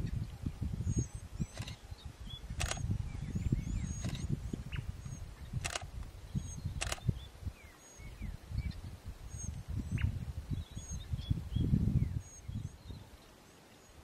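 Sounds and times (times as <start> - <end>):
small birds chirping: 0.0 - 14.0
sharp clicks: 1.5 - 1.8, 2.6 - 2.9, 5.6 - 5.9, 6.8 - 7.1.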